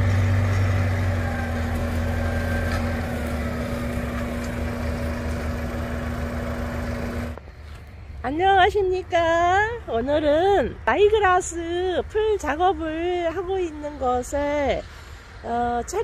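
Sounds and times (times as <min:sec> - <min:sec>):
tractor diesel engine running: 0:00.0 - 0:07.8.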